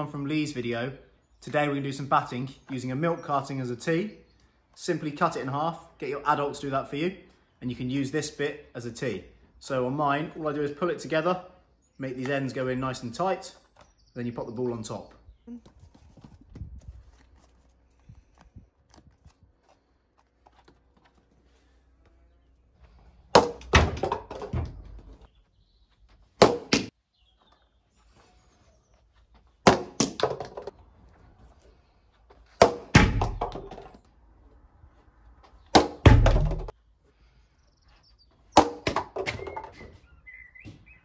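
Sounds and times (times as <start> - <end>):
plastic bat hitting plastic ball: 23.3 - 24.7, 26.4 - 26.9, 29.6 - 30.8, 32.6 - 34.0, 35.7 - 36.7, 38.6 - 39.8.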